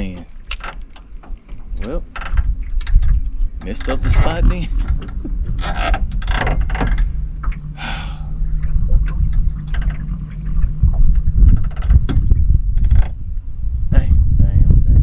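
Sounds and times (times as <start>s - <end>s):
water sloshing around boat: 0.0s - 13.6s
low rumble: 1.1s - 15.0s
electric trolling motor humming: 4.5s - 13.6s.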